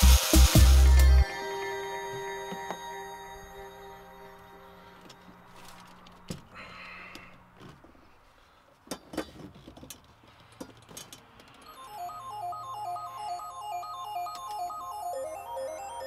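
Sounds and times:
stepped electronic melody: 0.0s - 5.4s, 11.7s - 16.0s.

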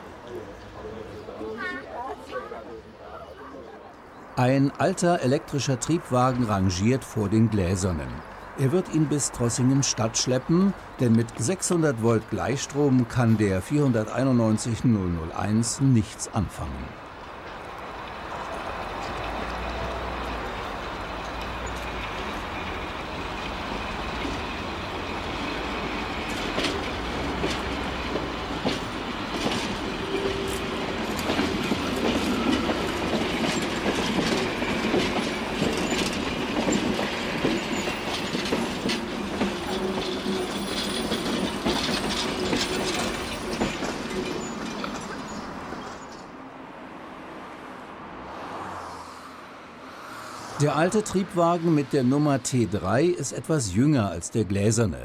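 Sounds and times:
railcar running rumble and hum: 16.9s - 46.8s
wheels clicking over rail joints: 17.0s - 46.4s.

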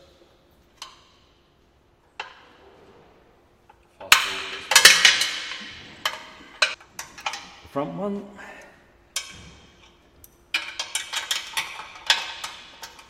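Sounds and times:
metallic clanks: 2.1s - 7.8s, 9.1s - 13.0s
spanner clicking on metal bolts: 4.0s - 7.6s, 9.2s - 13.0s.

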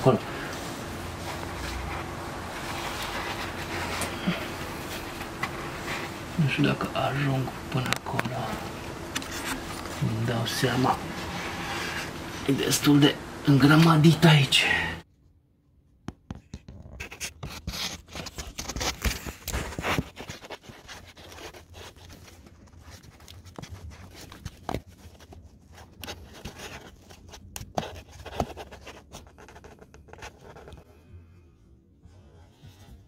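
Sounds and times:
phone scraping against plastic: 7.8s - 12.3s.

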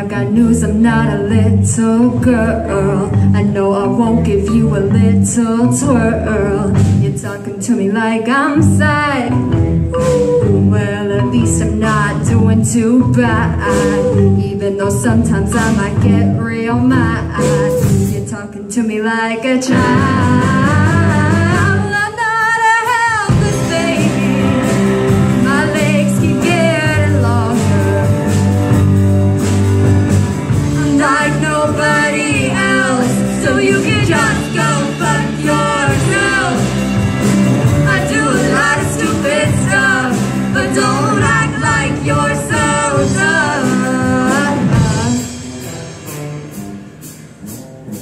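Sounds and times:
drums: 0.0s - 48.0s
keyboards: 22.9s - 48.0s
electric guitars: 23.3s - 48.0s
person singing: 30.7s - 45.4s.

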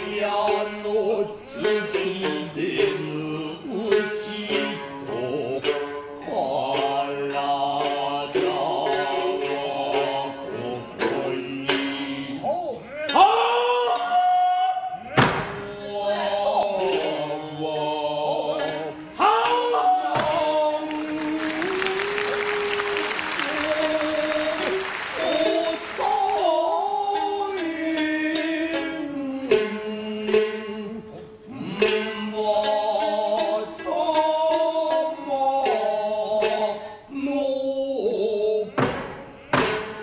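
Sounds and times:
plucked shamisen: 0.0s - 40.0s
sharp wooden knocks: 15.2s - 15.7s, 20.1s - 20.9s, 38.7s - 40.0s.

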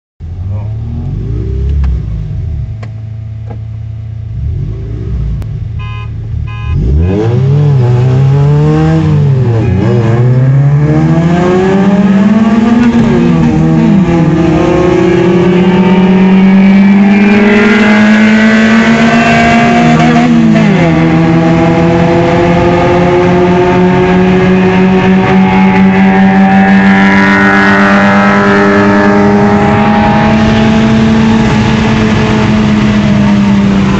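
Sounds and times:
car engine revving: 0.2s - 33.9s
quick beeps: 5.8s - 6.8s.

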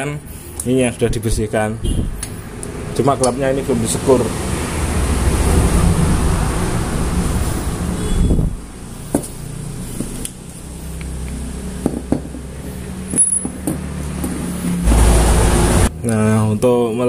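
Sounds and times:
metal parts clicking and knocking: 13.0s - 14.4s
steady low rumbling: 14.7s - 16.6s.

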